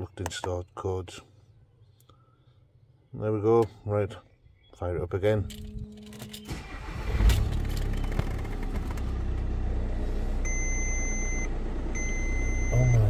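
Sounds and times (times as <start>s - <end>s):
diesel engine cranking and idling: 5.5s - 13.0s
dashboard warning beep: 10.4s - 13.0s.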